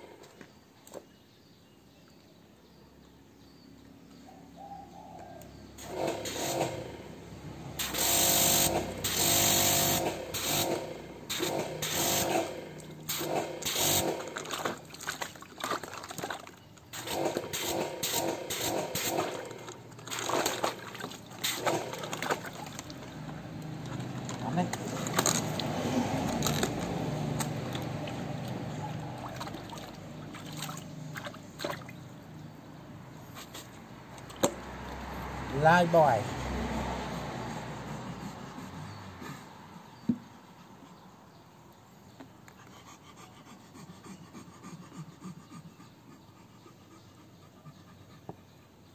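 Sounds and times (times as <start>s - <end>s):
water spraying into a plastic tub: 7.8s - 31.9s.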